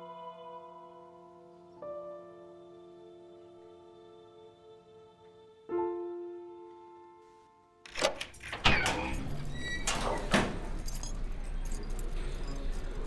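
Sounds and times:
door clanks and knocks: 7.9 - 11.2
keys jangling: 9.9 - 13.0.

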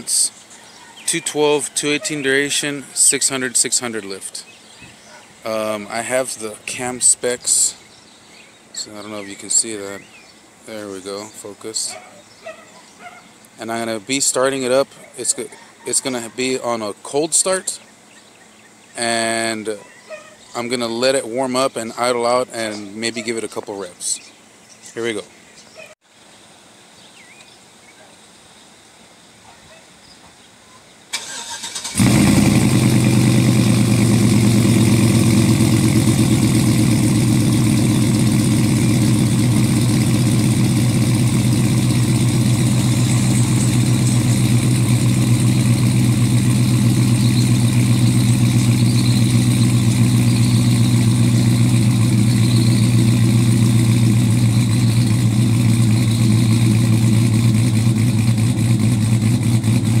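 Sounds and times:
starter motor cranking: 31.2 - 37.2
engine idling with pulsing beat: 32.0 - 60.0.

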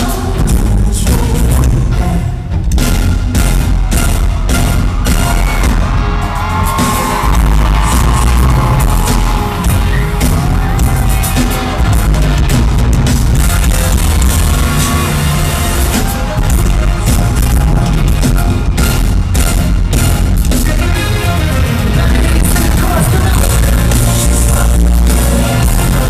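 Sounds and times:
heavy bass line: 0.0 - 26.0
live band over sound system: 0.0 - 26.0
drum hits: 2.8 - 20.8.

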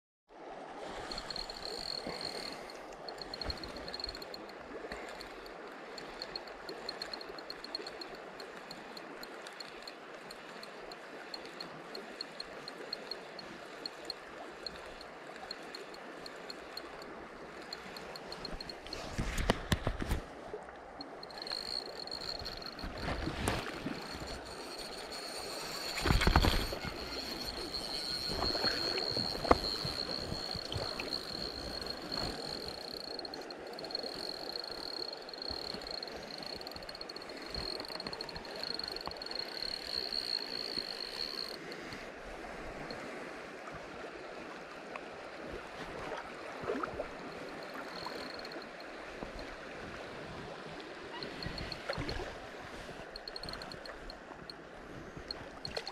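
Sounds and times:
fishing reel cranking: 1.0 - 20.1, 21.0 - 42.0, 47.4 - 48.9, 51.1 - 52.2, 53.1 - 54.6.

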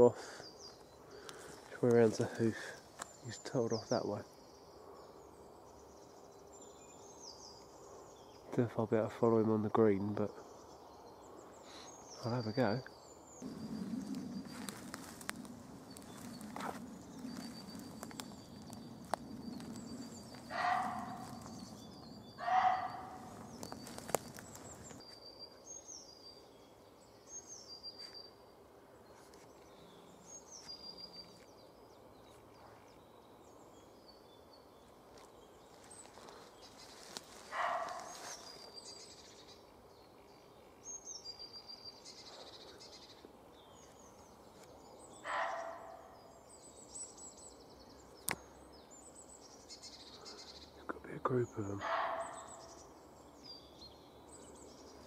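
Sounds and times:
small birds chirping: 0.0 - 55.0
footsteps on dry leaves: 13.4 - 25.0, 35.2 - 38.8
deer barking: 20.4 - 21.7, 22.4 - 23.5, 37.5 - 38.3, 45.2 - 46.1, 51.8 - 52.7.

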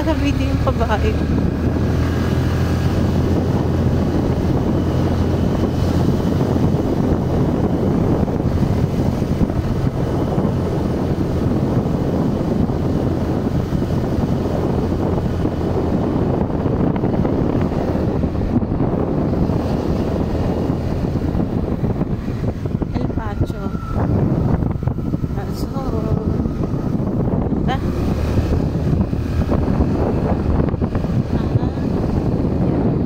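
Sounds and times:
motorcycle engine running: 0.0 - 33.0
wind buffeting microphone: 0.0 - 33.0.

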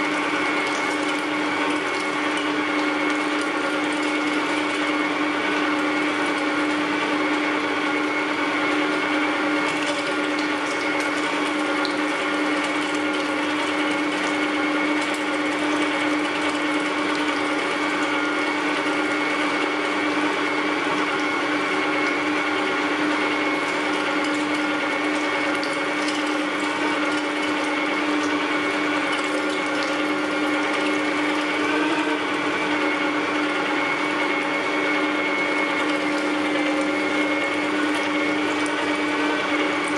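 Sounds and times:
electric meat grinder running: 0.0 - 39.9.

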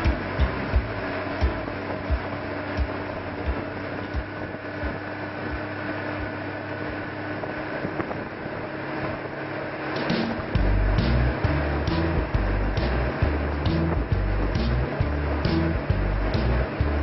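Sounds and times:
rush of wind and water: 0.0 - 15.4
boat engine drone: 0.0 - 17.0
low thumps: 10.1 - 17.0.

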